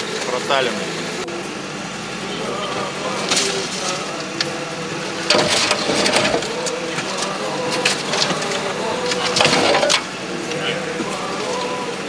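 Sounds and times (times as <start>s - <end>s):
vehicle engine hum: 0.0s - 12.0s
branches scraping and snapping: 3.1s - 4.6s, 5.2s - 10.1s.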